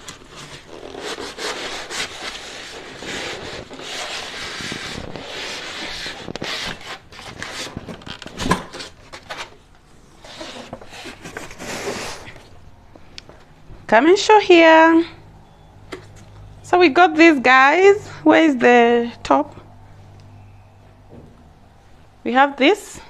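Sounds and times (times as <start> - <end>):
foam scraping against cardboard: 0.0 - 7.8, 10.2 - 12.5.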